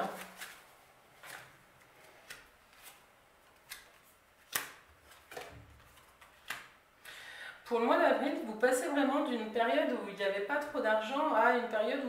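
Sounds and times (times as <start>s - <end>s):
cards clicking and tapping: 2.2s - 6.8s.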